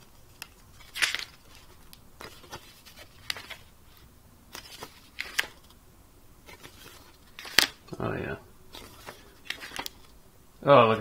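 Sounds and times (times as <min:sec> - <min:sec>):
paper booklet rustling: 0:00.0 - 0:05.8, 0:06.4 - 0:08.0, 0:08.7 - 0:10.2.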